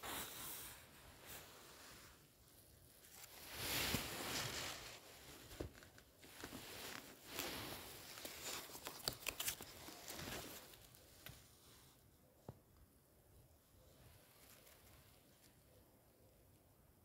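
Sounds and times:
book pages rustling: 0.0 - 11.9
crisp page flicks: 5.4 - 11.4.

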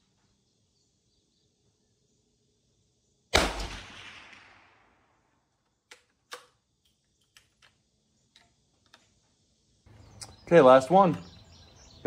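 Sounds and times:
rifle shot: 3.3 - 5.2
rifle bolt clicks: 5.9 - 7.8.

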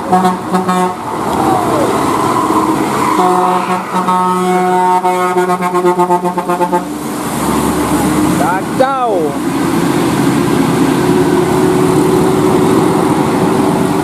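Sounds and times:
bus air horn blast: 0.0 - 1.1, 2.7 - 7.0
bus engines running: 0.0 - 14.0.

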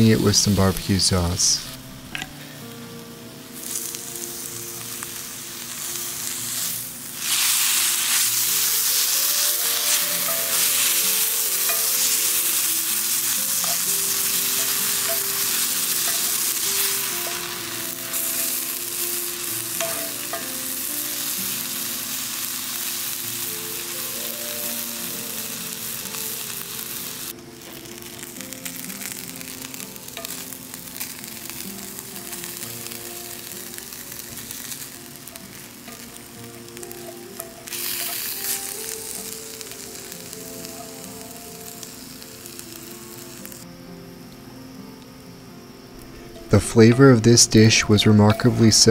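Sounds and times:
food sizzling in a skillet: 0.0 - 48.9
soft background music: 0.0 - 48.9.

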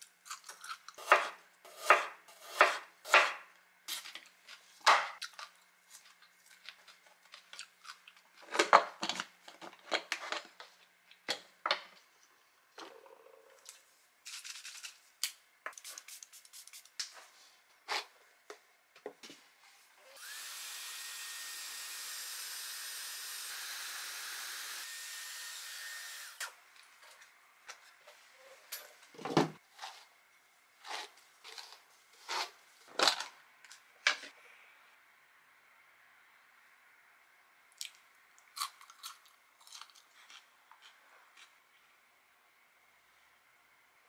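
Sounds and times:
hair dryer running: 20.0 - 26.5.

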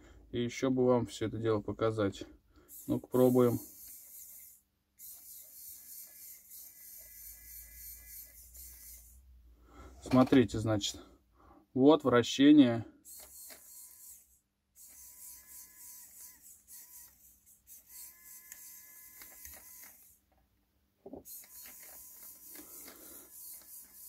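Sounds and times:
small gear motor whirring: 2.7 - 9.2, 13.1 - 20.2, 21.3 - 24.0.

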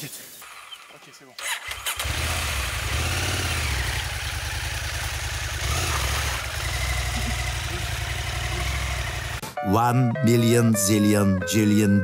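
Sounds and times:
motorcycle engine running: 1.8 - 9.4.

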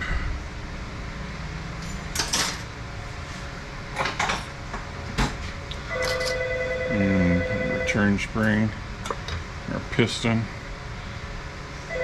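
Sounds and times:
steady humming tone: 0.0 - 12.0.

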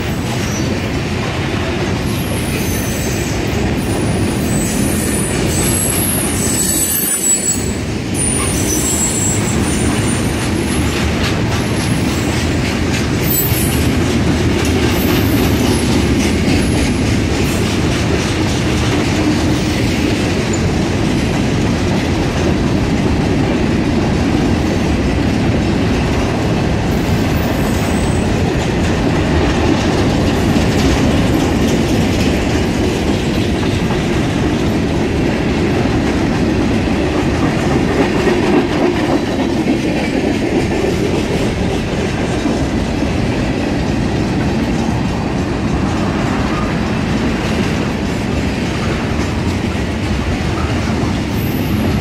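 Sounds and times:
train wheels rumbling on rail: 0.0 - 52.0
rhythmic clickety-clack: 7.8 - 52.0.

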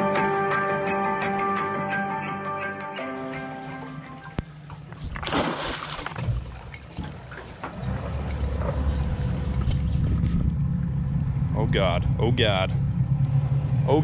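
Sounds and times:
crab pot splashing into water: 5.2 - 6.8
steady low rumble: 6.0 - 14.0.

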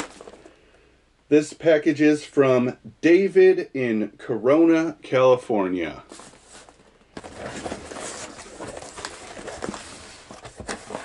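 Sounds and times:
cardboard rustling and scraping: 0.0 - 0.5, 6.1 - 11.0
cardboard crackles and knocks: 6.1 - 11.0.

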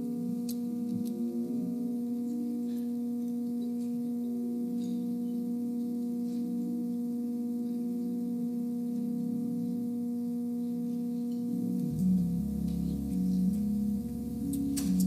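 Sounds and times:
church organ chord: 0.0 - 15.0
low organ notes shifting: 0.0 - 15.0.

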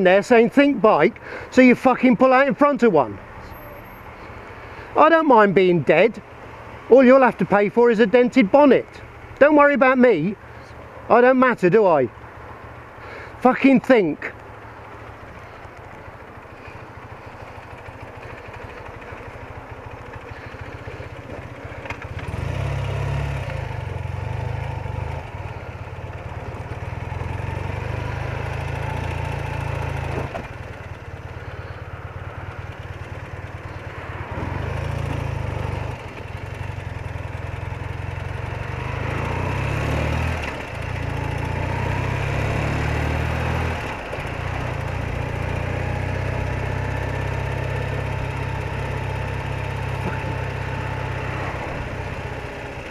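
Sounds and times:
motorcycle engine running: 14.3 - 52.9.

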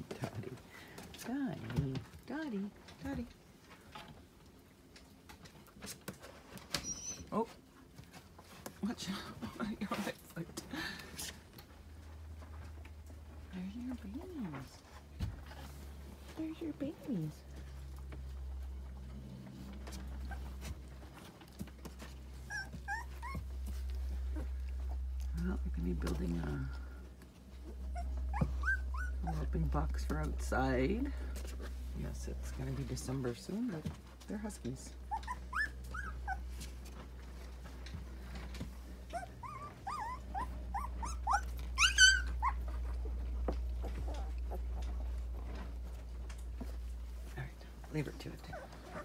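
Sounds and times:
puppies squeaking: 6.7 - 7.4, 20.0 - 20.7, 22.4 - 25.1, 27.6 - 29.5, 35.0 - 36.5, 39.1 - 43.1, 48.4 - 49.0
steady low hum: 7.4 - 49.0.

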